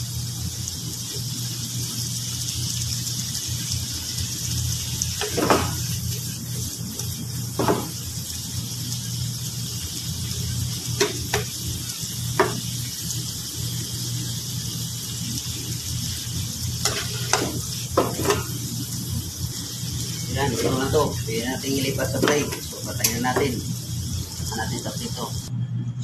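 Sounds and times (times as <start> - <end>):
shrimp sizzling in a pan: 0.0 - 25.5
metal spatula scraping pan: 16.8 - 18.5.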